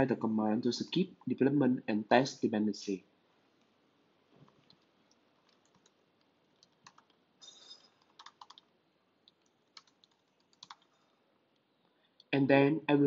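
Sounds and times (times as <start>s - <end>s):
typing on computer keyboard: 4.5s - 11.0s.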